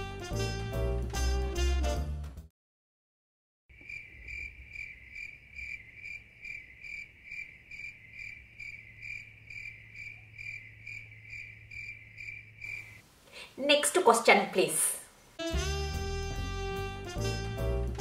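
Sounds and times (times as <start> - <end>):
cricket chirping: 3.7 - 13.0.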